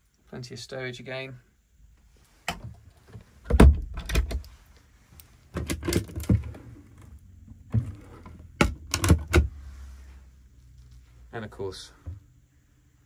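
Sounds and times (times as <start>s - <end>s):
wooden doors knocking shut: 3.5s - 4.4s.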